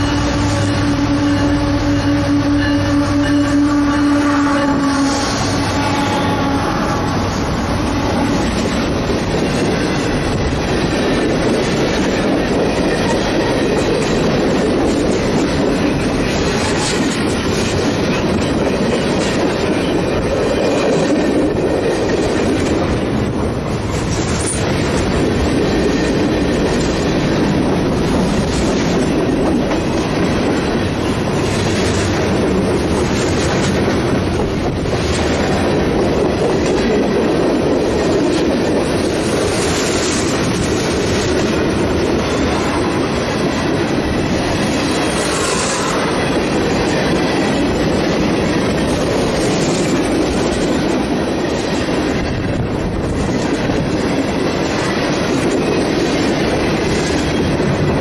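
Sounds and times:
train horn tone: 0:00.0 - 0:08.6
freight train rumbling past: 0:00.0 - 0:58.0.

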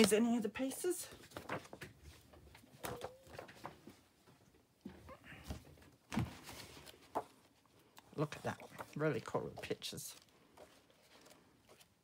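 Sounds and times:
book pages turning: 0:00.0 - 0:04.0, 0:05.5 - 0:12.0
page landing thump: 0:06.1 - 0:06.5.

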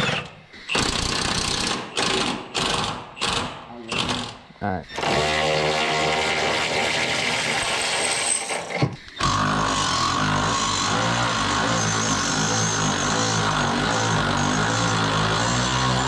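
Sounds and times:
impact wrench hammering on bolts: 0:00.7 - 0:04.4.

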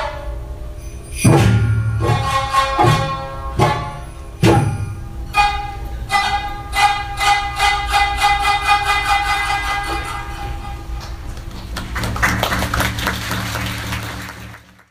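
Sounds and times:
held tone: 0:00.0 - 0:08.0
sharp drum strikes: 0:01.2 - 0:05.6
plucked string notes: 0:01.2 - 0:11.3.

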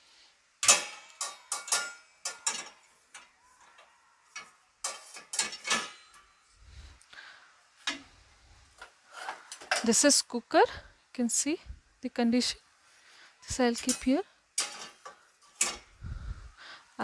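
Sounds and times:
metal pot clanking in dishwasher rack: 0:00.6 - 0:02.8, 0:04.4 - 0:06.2, 0:13.8 - 0:15.9.

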